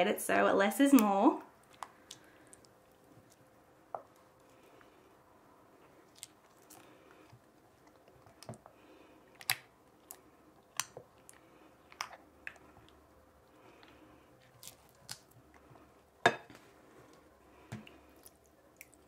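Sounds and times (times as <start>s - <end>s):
slime being stirred: 5.9s - 15.9s.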